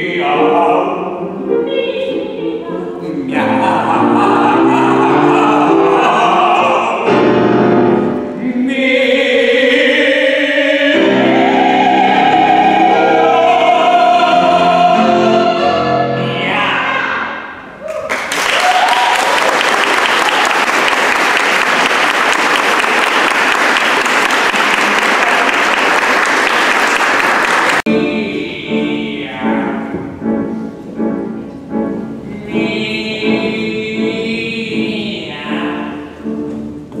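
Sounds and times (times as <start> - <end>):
audience applauding: 17.9 - 27.9.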